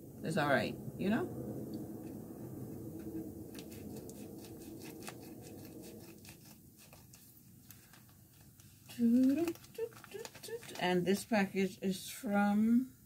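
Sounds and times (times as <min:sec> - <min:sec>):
plastic crinkling: 0:03.5 - 0:11.3
scissors cutting plastic envelope: 0:07.8 - 0:11.0.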